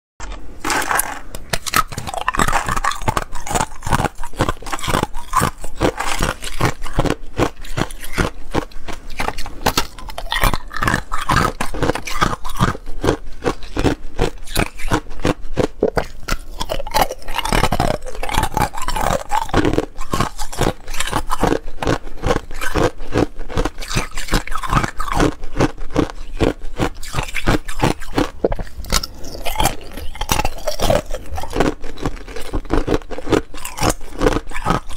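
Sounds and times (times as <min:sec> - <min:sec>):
ice cracking and crunching: 0:00.6 - 0:08.3, 0:23.6 - 0:34.9.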